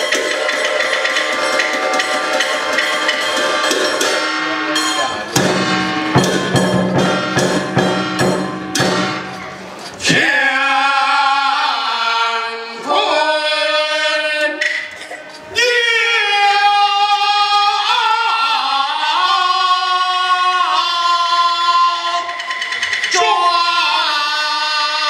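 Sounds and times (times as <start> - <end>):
person singing long wavering lines: 0.0 - 6.7
sharp percussion strikes: 0.0 - 10.3
percussion-led opera band: 0.0 - 25.0.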